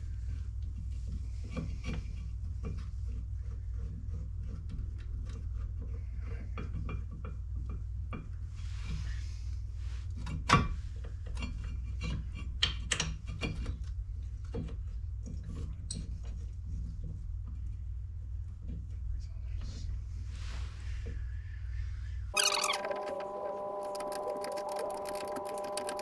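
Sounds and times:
steady low hum: 0:13.6 - 0:26.0.

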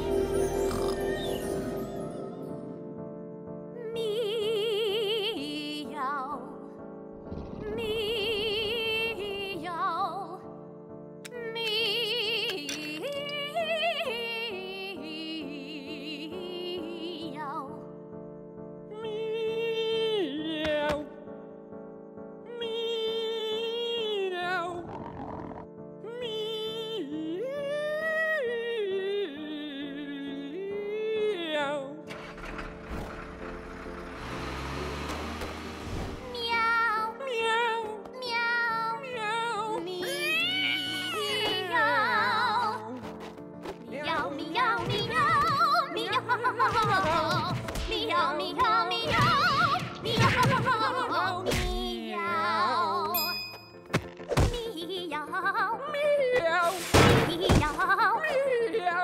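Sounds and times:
soft orchestral accompaniment: 0:00.0 - 0:06.4
background music: 0:00.0 - 0:59.0
woman singing operatically: 0:03.8 - 0:06.5, 0:07.6 - 0:10.4, 0:11.3 - 0:17.8, 0:18.9 - 0:21.2, 0:22.5 - 0:24.8, 0:26.0 - 0:32.3, 0:36.3 - 0:43.1, 0:43.8 - 0:53.2, 0:54.4 - 0:59.0
cartoon truck engine rumble: 0:32.1 - 0:36.5.

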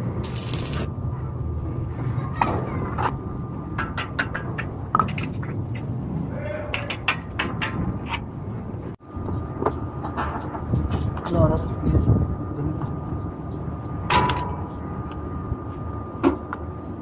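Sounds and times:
welding arc crackling: 0:00.0 - 0:00.9
low hum: 0:00.0 - 0:17.0
sharp clicks and knocks: 0:02.4 - 0:05.9.

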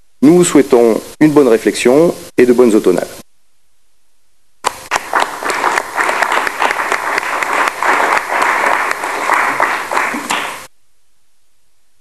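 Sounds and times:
audience applauding: 0:04.6 - 0:10.7.

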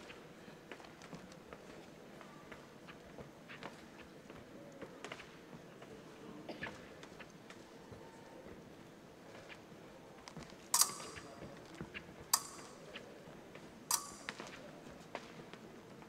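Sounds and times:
fencing blades clashing: 0:10.7 - 0:11.5, 0:12.3 - 0:13.0, 0:13.9 - 0:14.6.

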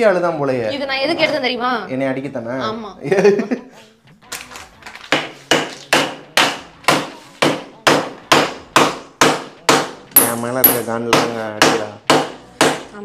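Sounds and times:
rolling pin pounding packet: 0:04.9 - 0:13.0.

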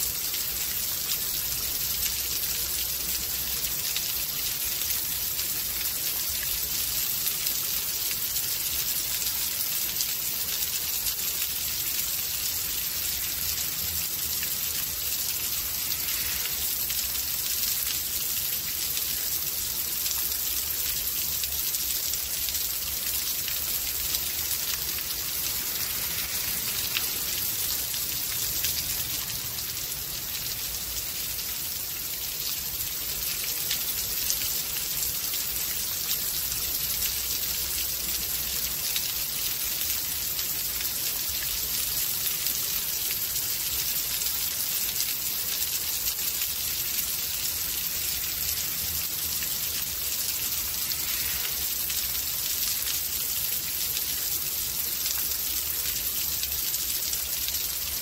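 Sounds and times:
steady rain hissing: 0:00.0 - 0:58.0.

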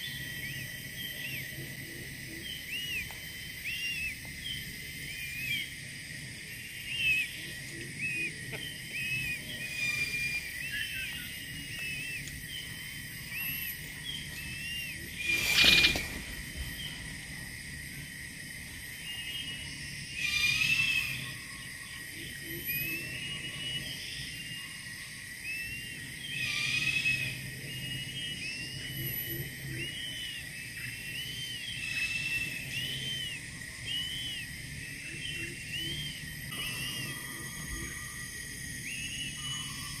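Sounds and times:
eagles whistled calls: 0:06.8 - 0:17.1, 0:25.5 - 0:40.0.

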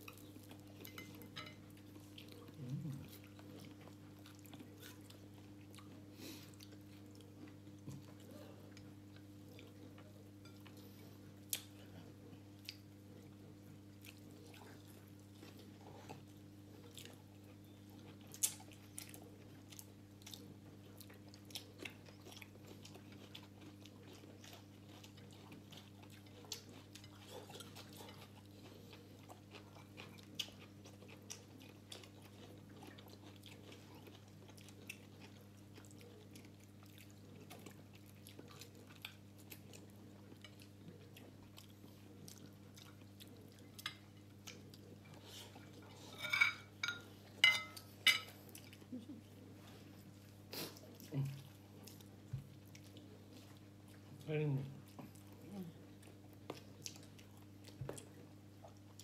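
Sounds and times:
chewing with mouth clicks: 0:00.0 - 0:59.0
spoon clinking against plate: 0:46.2 - 0:48.3.

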